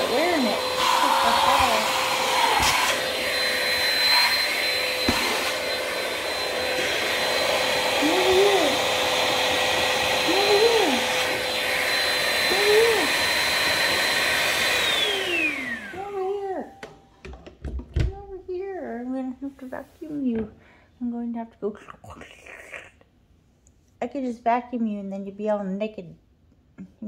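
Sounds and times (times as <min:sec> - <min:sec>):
handheld vacuum whining: 0:00.0 - 0:17.0.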